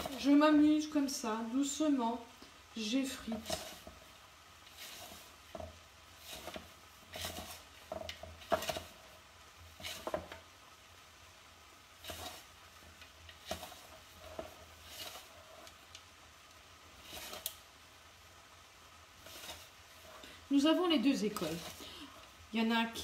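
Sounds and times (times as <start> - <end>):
fingertips rubbing flour in glass bowl: 3.1 - 4.0, 4.7 - 5.4, 6.2 - 9.0, 12.0 - 12.5.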